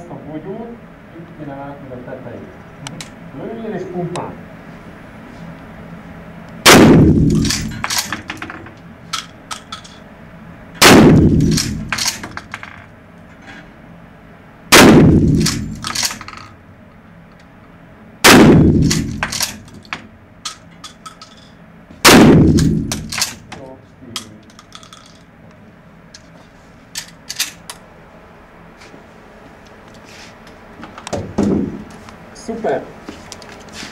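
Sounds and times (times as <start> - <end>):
shotgun shots echoing: 6.7 - 8.3, 10.8 - 12.2, 14.7 - 16.2, 18.2 - 19.6, 22.0 - 23.4.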